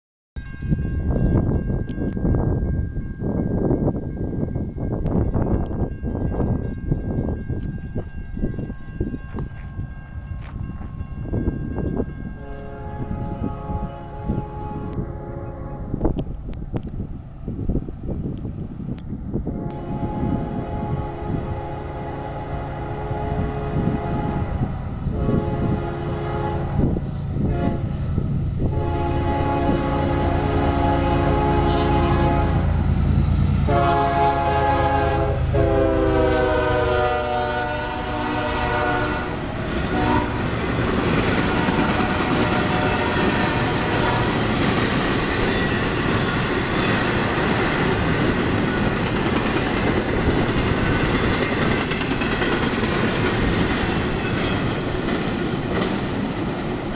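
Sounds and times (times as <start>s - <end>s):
locomotive engine rumbling: 3.6s - 56.9s
locomotive air horn blasts: 12.4s - 16.0s, 19.5s - 28.0s, 28.7s - 32.9s, 33.6s - 40.5s, 41.4s - 44.4s.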